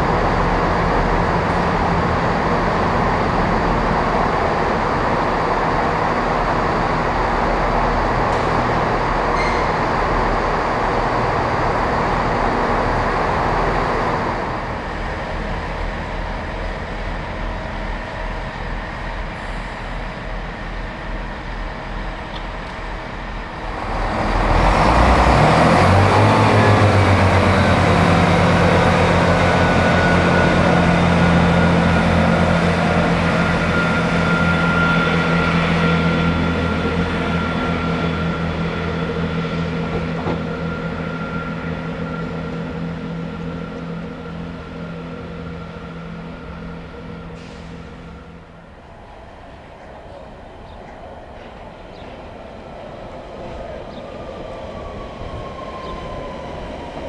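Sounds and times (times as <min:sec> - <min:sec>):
diesel locomotive idling: 0:00.0 - 0:57.0
diesel train engines revving: 0:00.0 - 0:57.0.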